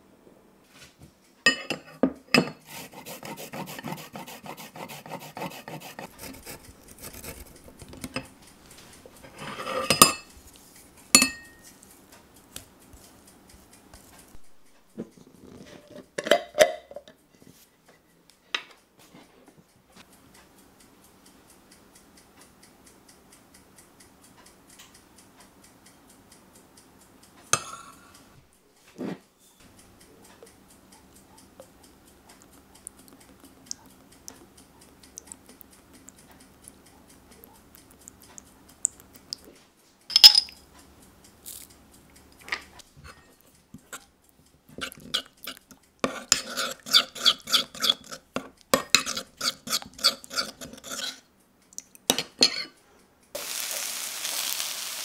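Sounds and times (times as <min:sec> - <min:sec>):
metal spoon clinking in pan: 0:01.5 - 0:02.6, 0:09.3 - 0:10.3, 0:11.1 - 0:11.7, 0:27.5 - 0:28.0, 0:40.1 - 0:40.6, 0:46.1 - 0:51.2, 0:52.1 - 0:52.8.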